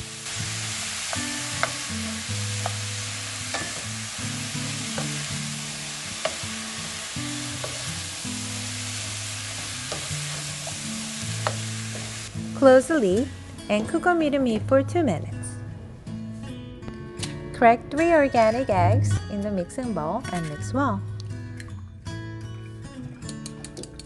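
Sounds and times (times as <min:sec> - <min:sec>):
vegetables sizzling in oil: 0:00.0 - 0:13.1.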